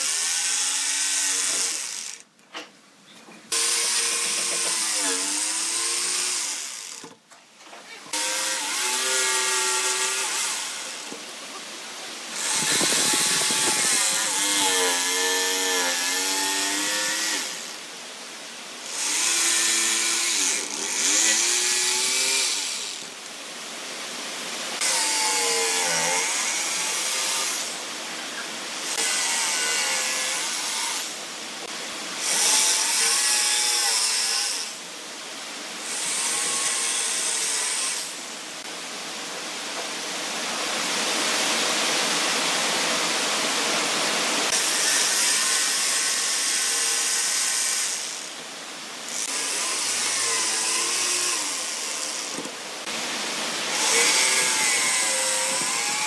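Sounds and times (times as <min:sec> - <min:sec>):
electric jigsaw cutting wood: 0:00.0 - 0:02.3, 0:03.5 - 0:07.2, 0:08.1 - 0:11.3, 0:12.3 - 0:18.0, 0:18.8 - 0:23.2, 0:24.8 - 0:27.9, 0:28.8 - 0:31.2, 0:32.2 - 0:34.9, 0:44.4 - 0:48.3, 0:49.1 - 0:56.0.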